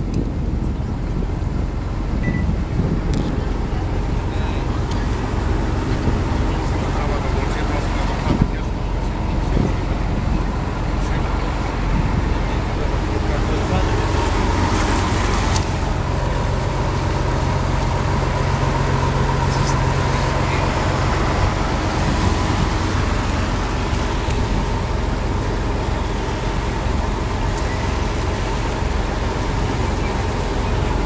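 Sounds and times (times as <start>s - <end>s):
boat engine humming: 0.0s - 31.0s
water rushing: 0.0s - 31.0s.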